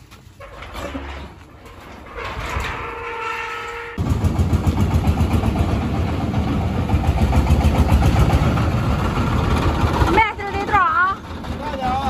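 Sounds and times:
truck engine chugging: 4.0 - 12.0.

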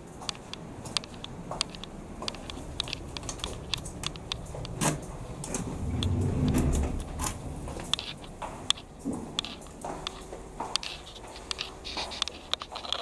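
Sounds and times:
light clicks and taps: 0.2 - 13.0
sliding door motor rumble: 2.7 - 8.4.

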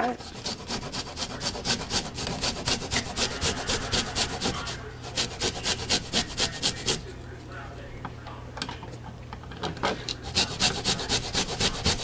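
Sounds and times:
garlic grated on metal grater: 0.0 - 7.0, 10.2 - 12.0.

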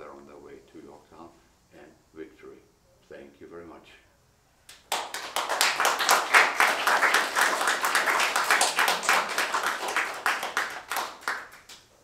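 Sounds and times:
audience applauding: 4.8 - 11.9.

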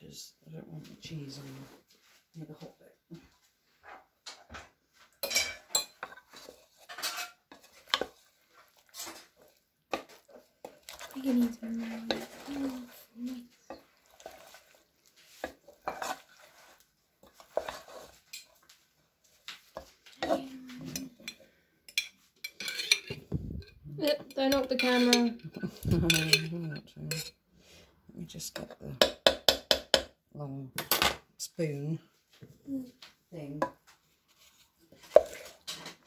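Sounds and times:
spoons scraping metal pot: 5.2 - 18.7, 19.8 - 27.4, 34.3 - 36.0.

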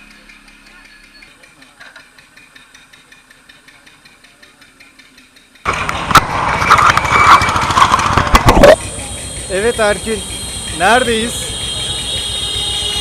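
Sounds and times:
rattles and clicks: 0.0 - 8.9
vehicle engine and road noise: 5.4 - 13.0.

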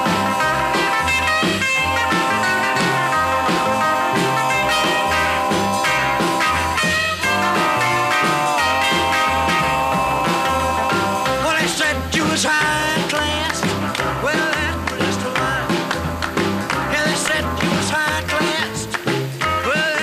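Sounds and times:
electric guitar bending notes: 0.0 - 14.9
bass and drum beat: 0.0 - 20.0.

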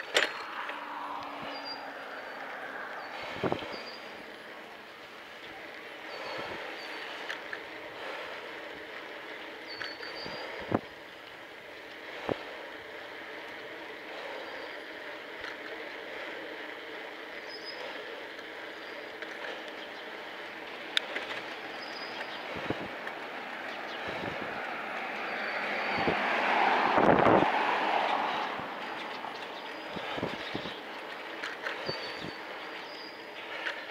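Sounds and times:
bicycle rolling noise: 0.0 - 33.9
wind noise: 3.0 - 3.9, 22.4 - 23.1, 24.0 - 24.6, 25.3 - 29.2, 29.8 - 30.9.

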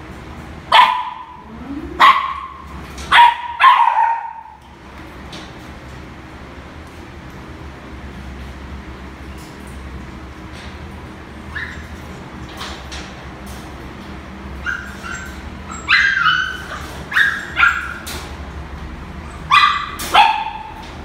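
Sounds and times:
puppies yipping and whimpering: 1.4 - 2.6, 11.5 - 12.0, 14.6 - 18.0.

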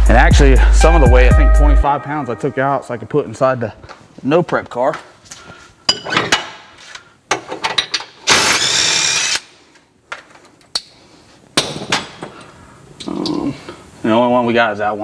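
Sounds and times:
power drill running: 8.3 - 9.5.

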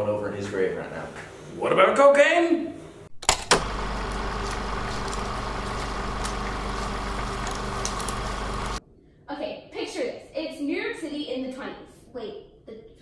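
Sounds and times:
film projector running: 3.2 - 8.8.

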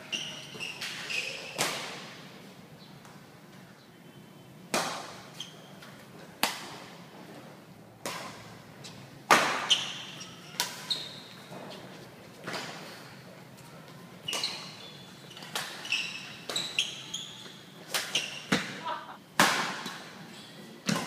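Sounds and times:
shoes squeaking on court floor: 0.0 - 1.6, 5.2 - 6.2, 8.8 - 19.2
rackets hitting shuttlecock: 8.0 - 8.6, 9.3 - 10.9, 17.9 - 20.2.

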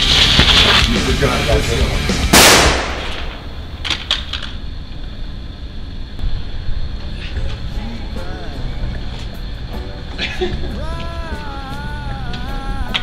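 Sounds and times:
music: 0.0 - 3.0, 7.0 - 13.0
pistol gunshot: 2.3 - 3.5.

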